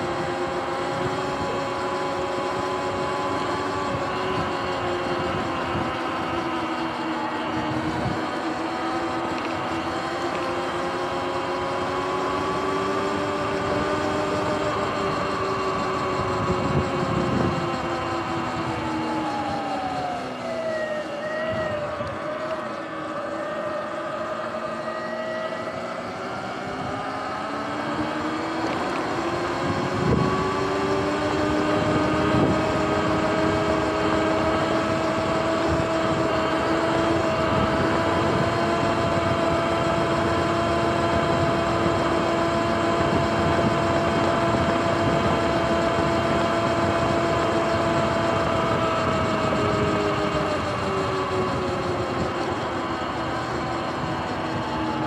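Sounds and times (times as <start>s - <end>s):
electric motor whining: 0.0s - 55.0s
tyre and wind noise: 26.8s - 53.4s.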